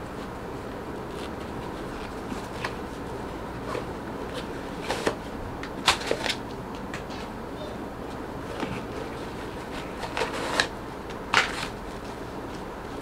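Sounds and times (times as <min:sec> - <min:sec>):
steady background hiss: 0:00.0 - 0:13.0
items rustling in cardboard box: 0:08.4 - 0:10.8.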